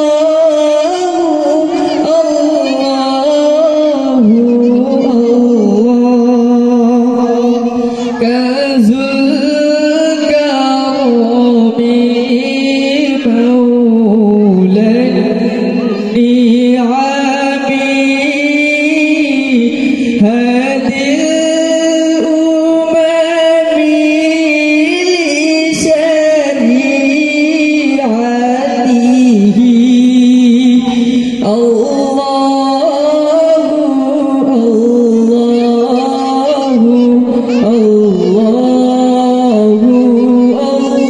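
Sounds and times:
boy singing into a microphone: 0.0s - 41.0s.

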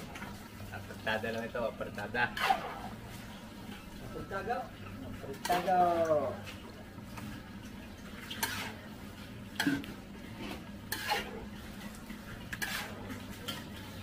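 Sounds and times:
utensil scraping and knocking pot: 8.3s - 8.8s, 9.6s - 11.5s, 12.5s - 13.8s.

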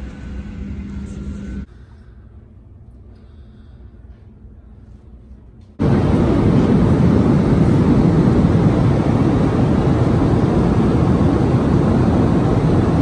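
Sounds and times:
jet engines and airflow rushing: 5.8s - 13.0s.

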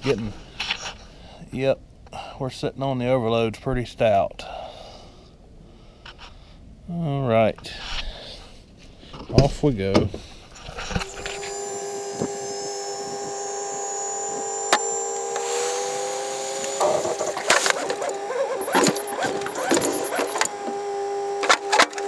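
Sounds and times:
hydraulic hoist whine: 10.7s - 22.0s.

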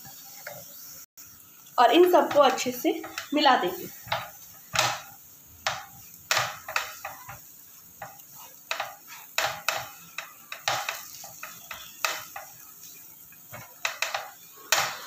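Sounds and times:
spatula scraping frying pan: 0.0s - 0.9s, 2.0s - 15.0s.

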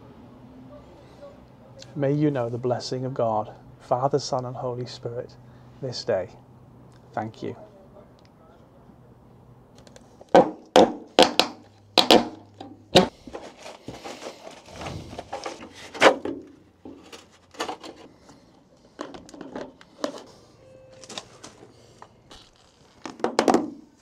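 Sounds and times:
plastic pipe clattering: 10.3s - 18.1s, 19.0s - 20.2s, 23.0s - 23.9s.

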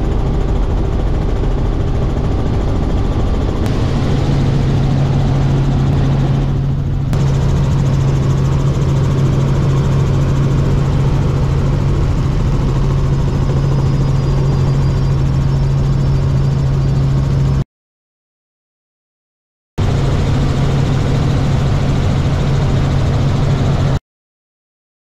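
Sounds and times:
helicopter cabin hum: 0.0s - 17.6s, 19.8s - 24.0s
loud rushing noise: 3.6s - 8.3s.

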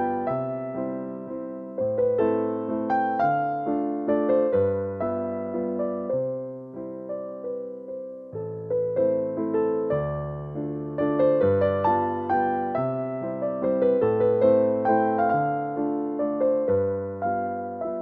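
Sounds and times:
slow gentle piano melody: 0.0s - 18.0s.

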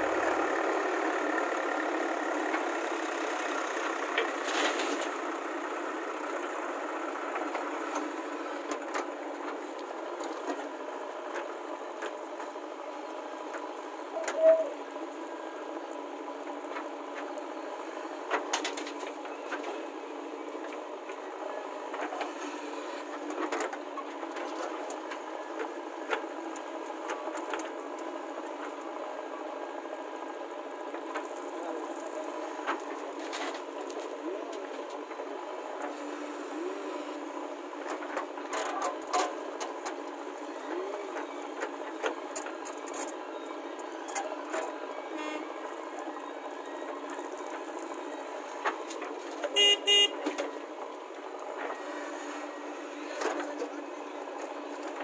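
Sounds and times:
diesel engine under load: 0.0s - 55.0s
vehicle horn toots: 45.2s - 45.5s, 49.6s - 50.2s.

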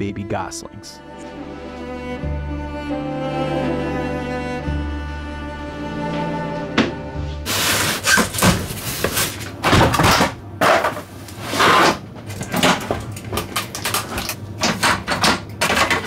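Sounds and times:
cardboard and packaging rustling: 7.5s - 14.4s
plastic parts clacking and scraping: 7.5s - 16.0s.

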